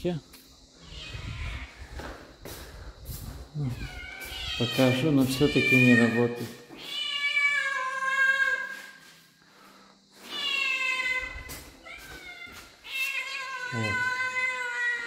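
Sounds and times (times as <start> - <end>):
cat meowing: 0.8 - 1.8, 3.7 - 8.6, 10.3 - 15.0.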